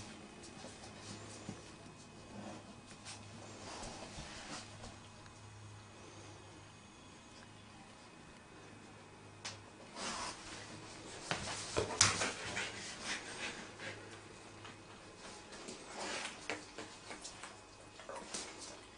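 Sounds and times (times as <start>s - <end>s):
dogs sniffing: 11.4s - 14.4s.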